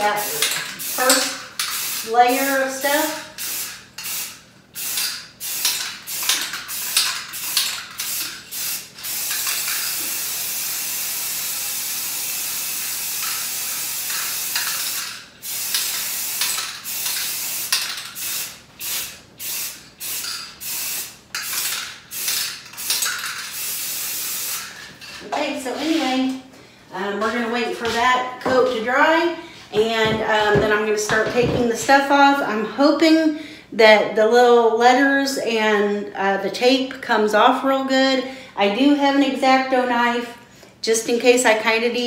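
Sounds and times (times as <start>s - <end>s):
aerosol spray can hissing: 0.0s - 24.8s.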